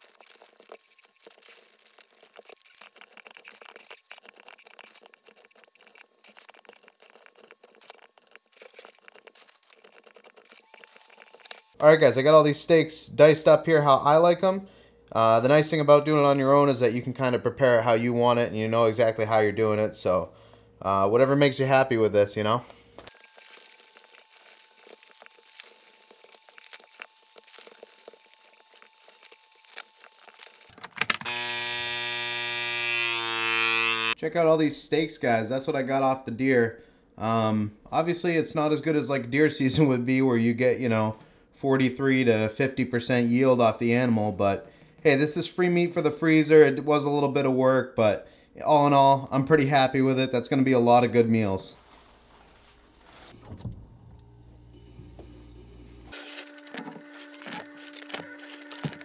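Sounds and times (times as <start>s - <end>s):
plastic bag crinkling: 0.0s - 11.8s, 23.1s - 31.3s, 56.1s - 59.0s
vacuum sealer motor humming: 23.1s - 34.2s, 56.1s - 59.0s.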